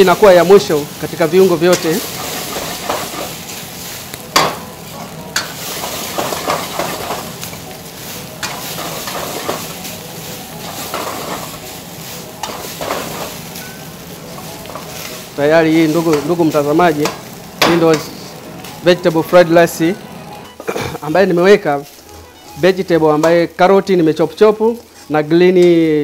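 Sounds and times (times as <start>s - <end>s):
fried rice sizzling in a wok: 0.0s - 26.0s
metal ladle scraping wok: 1.7s - 3.5s, 8.2s - 15.3s.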